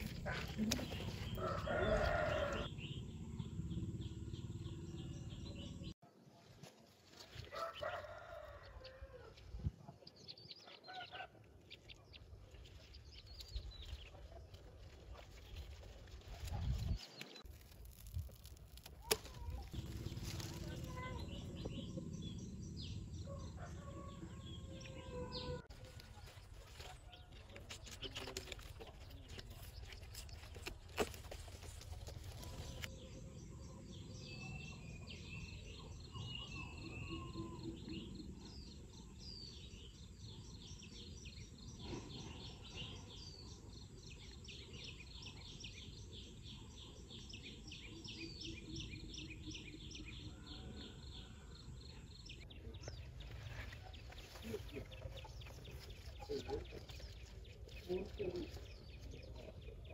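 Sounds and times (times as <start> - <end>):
low outdoor hum: 0.0 - 6.0, 18.1 - 26.8
small birds chirping: 24.4 - 59.9.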